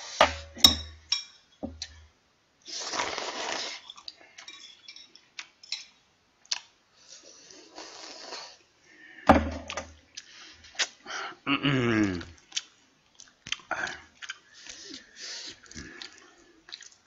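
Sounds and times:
chewing: 0:06.5 - 0:06.7, 0:12.1 - 0:17.0
short falling vocal sound: 0:11.5 - 0:12.3.

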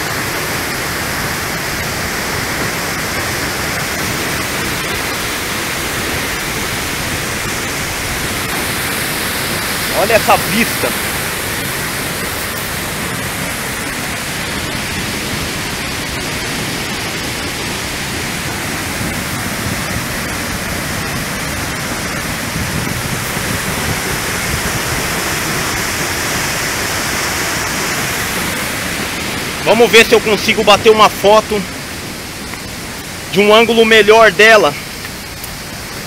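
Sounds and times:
waterfall rushing: 0:00.0 - 0:36.0.

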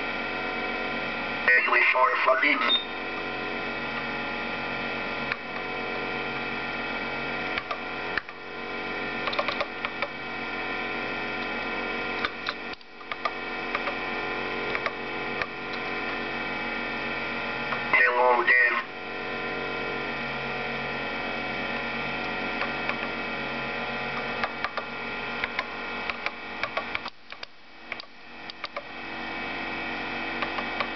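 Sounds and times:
computer electrical hum: 0:00.0 - 0:30.9
keyboard keys clicking: 0:09.2 - 0:10.0.

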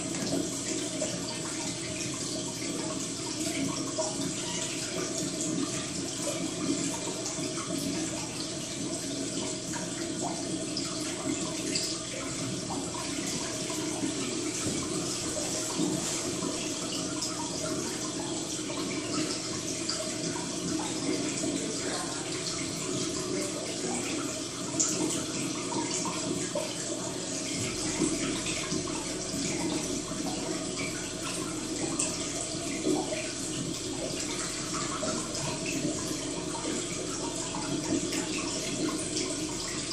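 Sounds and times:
water running and trickling: 0:00.0 - 0:39.9.

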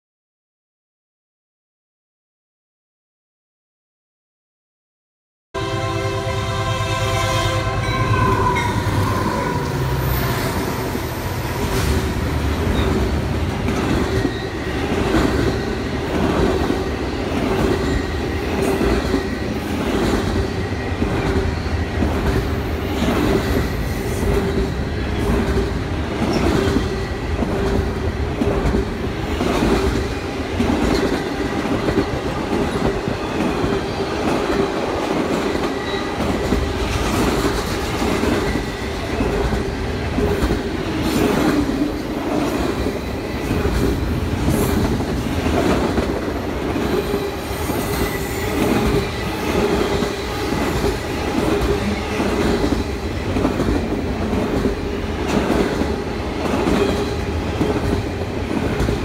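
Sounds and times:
steady high tone: 0:05.6 - 0:12.0
rail clacks: 0:07.8 - 0:59.0
train wheels rumbling on rail: 0:07.8 - 0:59.0.

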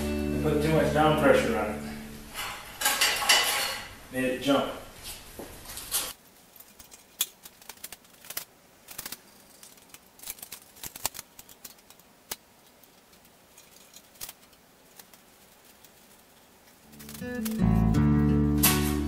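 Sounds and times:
metal pieces clinking and knocking: 0:12.7 - 0:14.6.

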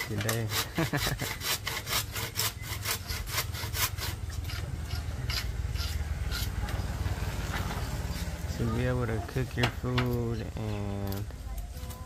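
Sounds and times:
handsaw cutting bamboo: 0:00.0 - 0:08.5.

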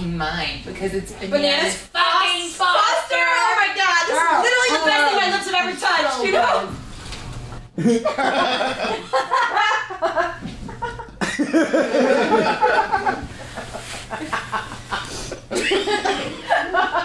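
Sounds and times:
audience laughing: 0:07.8 - 0:17.0.

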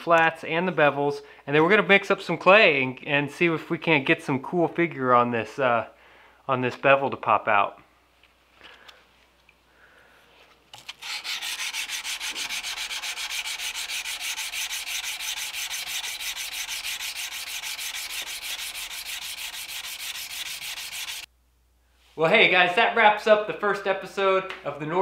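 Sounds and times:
sandpaper rubbing on steel blade: 0:10.9 - 0:21.3.

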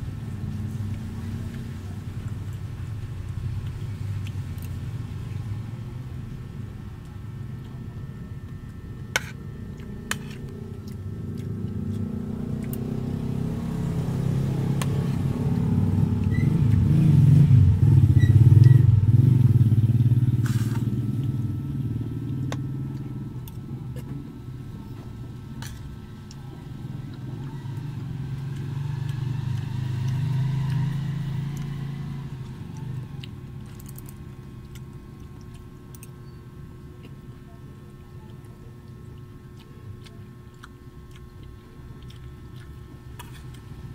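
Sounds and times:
passing vehicles rumbling: 0:10.4 - 0:35.0.

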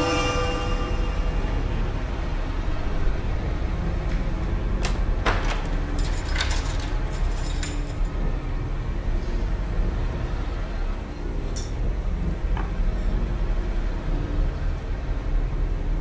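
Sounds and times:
keys jingling: 0:05.9 - 0:08.1.

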